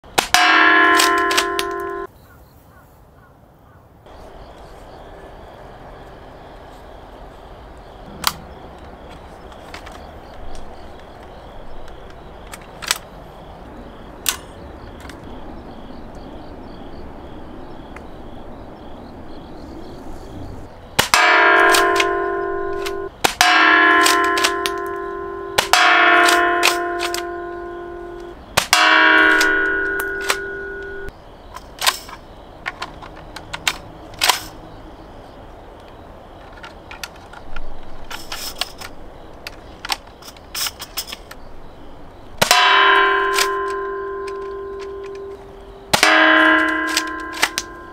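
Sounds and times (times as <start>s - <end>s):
airsoft gun shots: 0.2s - 2.1s, 21.0s - 27.6s, 28.2s - 31.1s, 42.4s - 47.7s
gun action clacks: 0.2s - 2.1s, 11.9s - 13.1s, 21.0s - 27.4s, 28.2s - 34.6s, 42.4s - 47.8s
metal target ringing: 0.2s - 2.1s, 21.0s - 31.1s, 42.4s - 47.9s.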